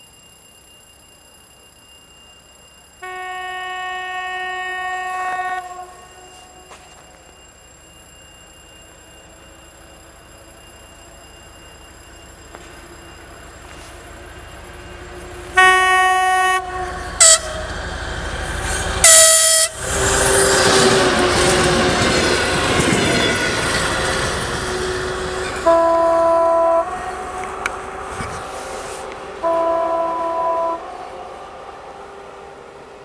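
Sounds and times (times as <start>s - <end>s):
train wheels on rails: 0.0s - 33.0s
locomotive horn blasts: 3.0s - 7.0s, 15.5s - 17.8s, 19.0s - 19.9s, 24.7s - 31.2s.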